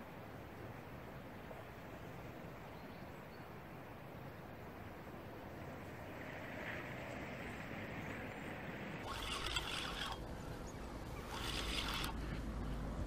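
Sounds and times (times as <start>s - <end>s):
spinning reel being cranked: 9.0s - 10.2s, 11.2s - 12.2s.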